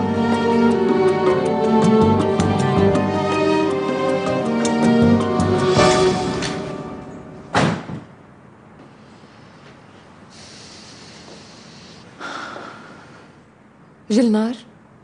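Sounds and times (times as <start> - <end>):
door shutting thud: 7.5 - 8.1.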